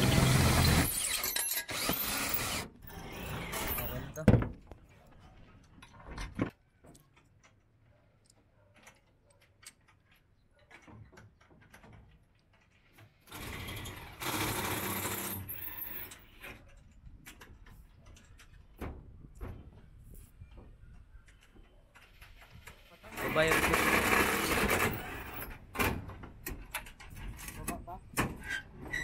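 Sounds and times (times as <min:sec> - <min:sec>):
cordless drill running: 0:00.0 - 0:03.9.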